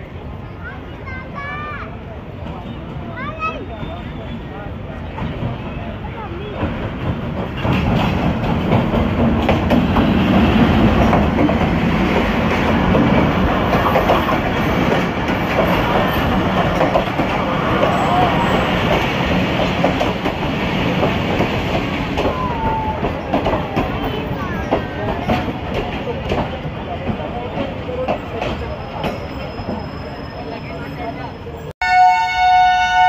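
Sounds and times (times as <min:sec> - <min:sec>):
diesel locomotive engine passing: 0:00.0 - 0:33.0
train wheels clattering over rails: 0:05.0 - 0:30.2.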